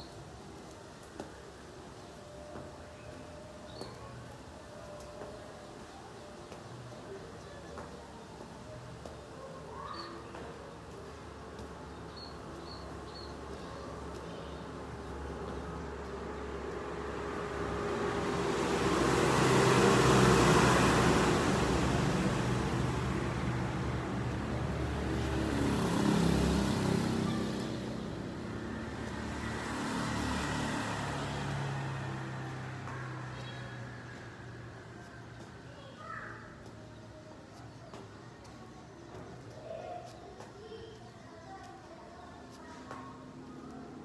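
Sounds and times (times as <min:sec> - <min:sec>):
road noise: 0:00.0 - 0:44.0
vehicle engine hum passing: 0:13.4 - 0:35.6.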